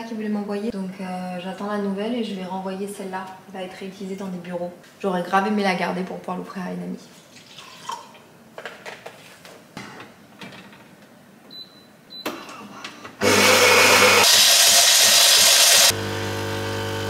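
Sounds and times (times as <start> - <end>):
coffee machine whirring: 13.2 - 17.0.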